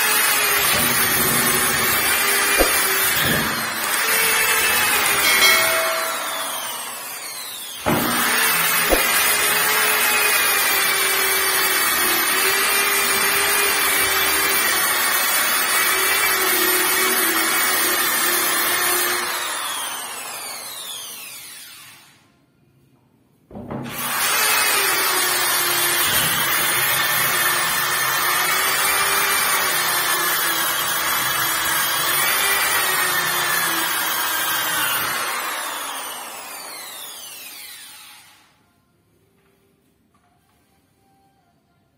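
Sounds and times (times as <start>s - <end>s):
electric orbital sander: 0.0s - 11.7s.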